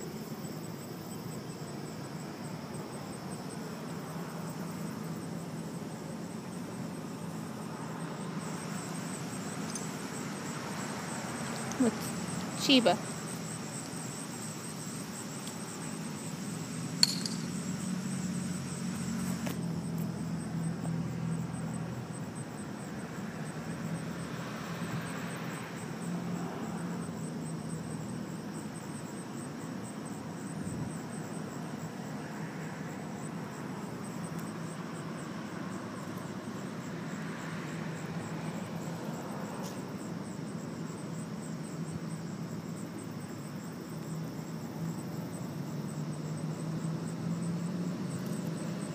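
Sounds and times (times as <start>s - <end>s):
low outdoor hum: 0.0s - 48.9s
sharp clink: 17.0s - 17.6s.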